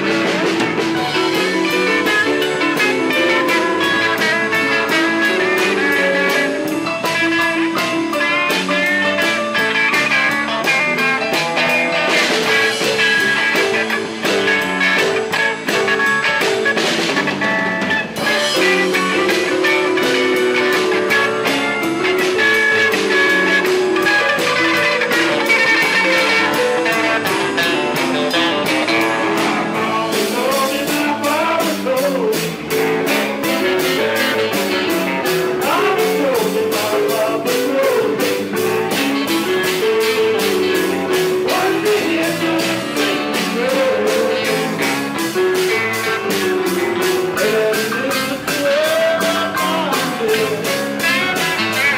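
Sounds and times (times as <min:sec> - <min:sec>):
drum kit beat: 0:00.0 - 0:51.9
electric guitar: 0:00.0 - 0:51.9.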